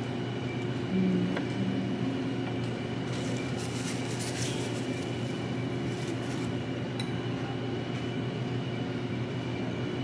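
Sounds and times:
low room hum: 0.0 - 10.0
wrapper paper crinkling: 3.2 - 5.2.

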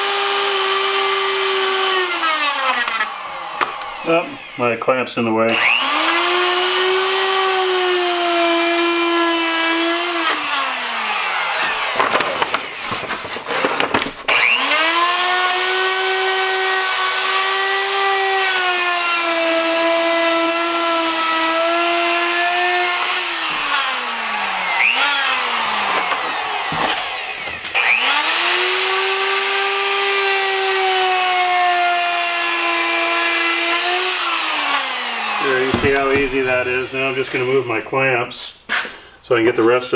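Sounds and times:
electric router whining: 0.0 - 38.2.

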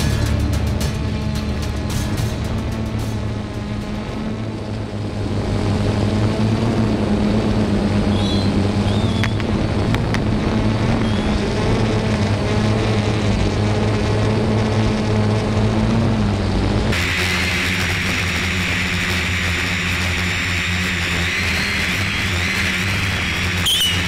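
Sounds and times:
drone motors humming: 0.0 - 24.0
firework rockets whistling: 8.0 - 9.6, 10.9 - 11.4, 17.0 - 24.0.

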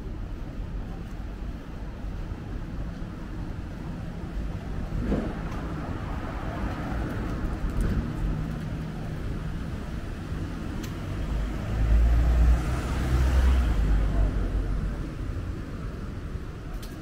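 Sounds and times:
cars passing: 2.0 - 16.7.

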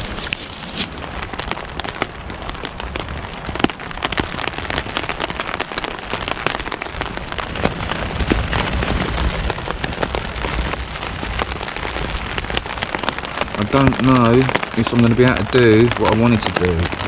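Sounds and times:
rain hissing on a tarp: 0.0 - 17.0
raindrop hits: 0.0 - 17.0.

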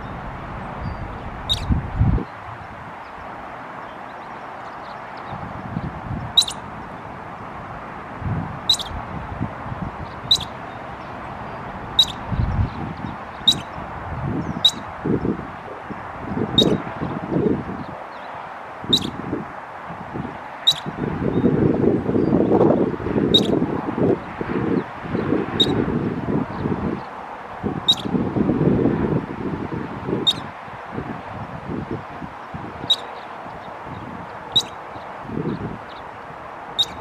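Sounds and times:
ground squirrel alarm chirps: 0.9 - 1.7, 6.4 - 6.6, 8.7 - 9.0, 10.2 - 10.6, 12.0 - 12.2, 13.4 - 13.8, 14.6 - 14.9, 16.6 - 16.8, 18.9 - 19.2, 20.6 - 20.9, 23.4 - 23.6, 27.9 - 28.1, 30.2 - 30.5, 32.8 - 33.2, 34.5 - 34.8, 36.8 - 37.0.

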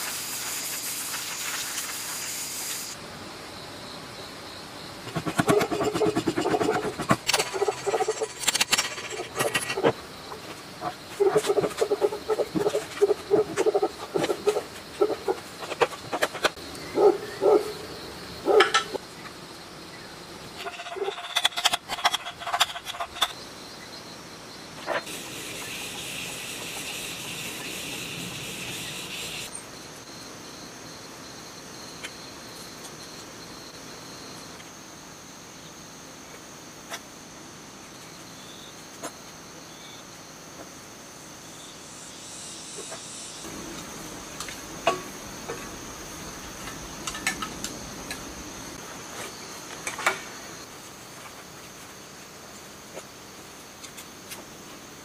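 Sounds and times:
high hiss: 0.0 - 3.0, 25.1 - 29.6, 41.5 - 49.7
insects chirring: 0.0 - 55.0.

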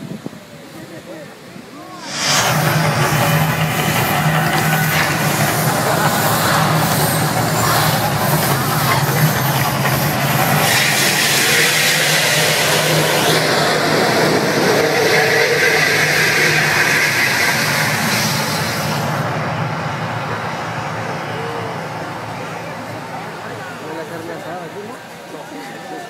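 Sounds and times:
loud rush of fire jets: 1.8 - 23.9.

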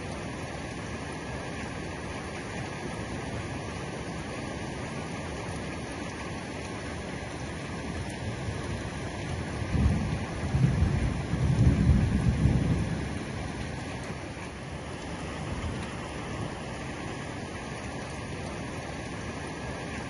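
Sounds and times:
heavy rain falling: 0.0 - 20.0
thunder rumbling: 9.4 - 13.7.

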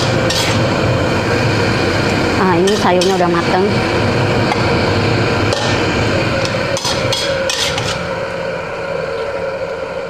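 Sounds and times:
metal spatula scraping a wok: 0.0 - 0.7, 5.4 - 8.2.

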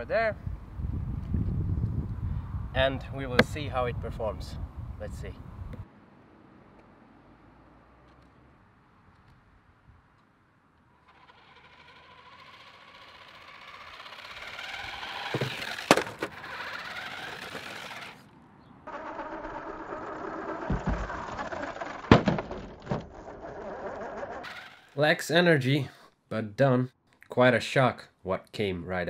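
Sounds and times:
tyres rolling on rough tarmac: 10.8 - 25.0
toy car motor whining: 10.9 - 18.3, 18.9 - 22.1, 23.1 - 25.0
sharp knocks: 20.7 - 21.3.

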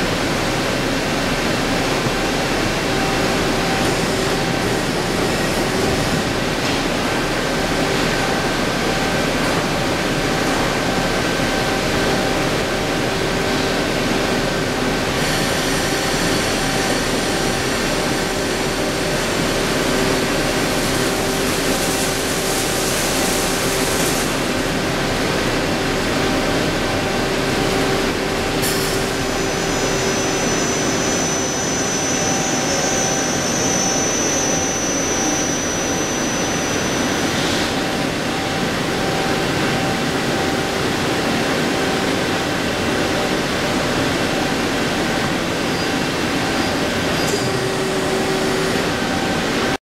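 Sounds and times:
high-pitched machine whines: 0.0 - 49.8
lathe running: 27.1 - 41.2.

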